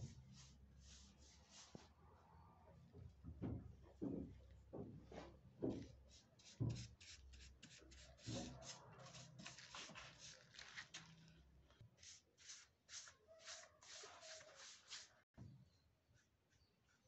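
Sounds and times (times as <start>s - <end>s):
brush rubbing on wood: 0.0s - 1.9s, 6.1s - 10.5s, 12.0s - 15.2s.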